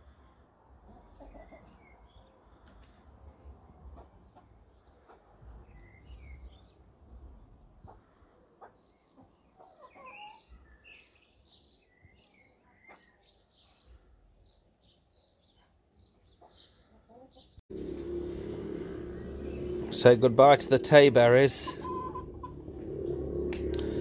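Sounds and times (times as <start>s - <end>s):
birds chirping: 0.0s - 24.0s
steady hum with rushing noise: 17.7s - 24.0s.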